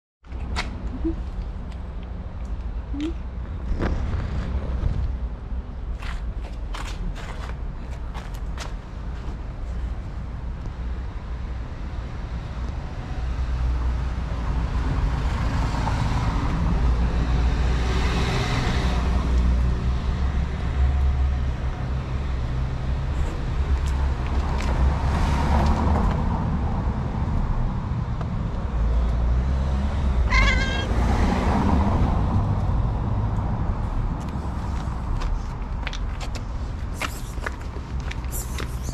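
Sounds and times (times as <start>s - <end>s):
cat meowing: 30.3s - 31.0s.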